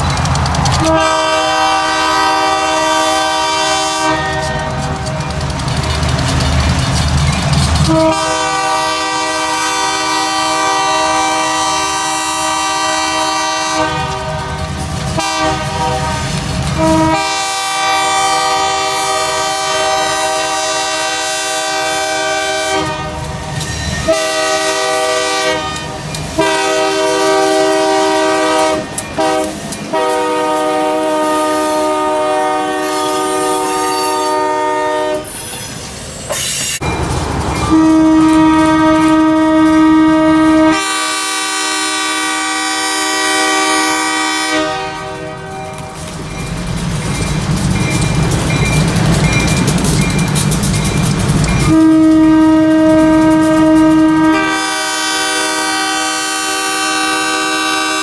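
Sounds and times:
locomotive air horn blasts: 0.8 - 4.8, 7.9 - 23.4, 24.0 - 35.4, 37.7 - 45.7, 51.6 - 58.0.

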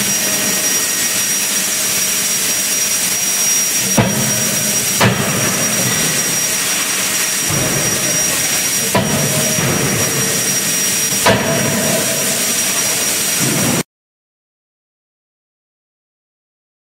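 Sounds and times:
loud hiss: 0.0 - 13.8
forging hammer striking: 3.8 - 13.8.

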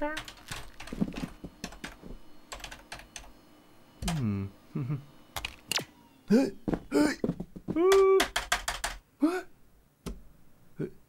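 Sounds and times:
computer keyboard typing: 0.0 - 3.3, 7.9 - 9.0
short vocal sounds: 4.0 - 5.1, 6.3 - 7.2, 9.2 - 9.5.

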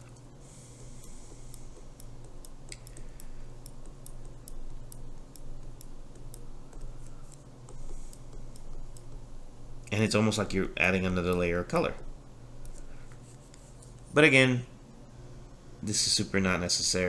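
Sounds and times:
steady low hum: 0.0 - 17.0
stylus tapping on glass screen: 0.8 - 9.3.

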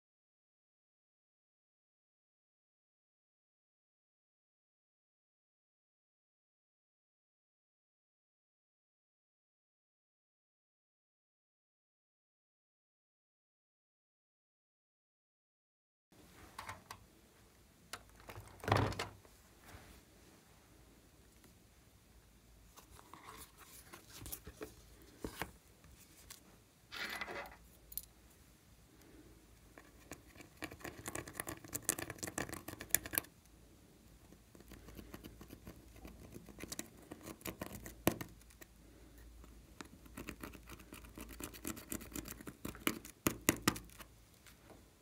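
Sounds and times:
knocks and handling sounds: 16.2 - 17.1, 17.9 - 20.0, 22.7 - 28.2.

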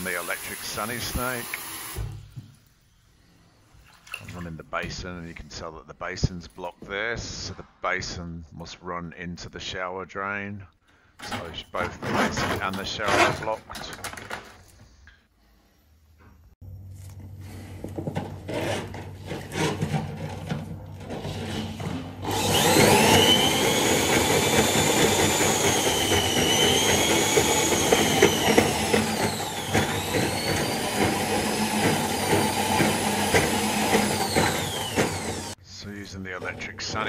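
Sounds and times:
drain snake motor whine: 22.3 - 35.6.

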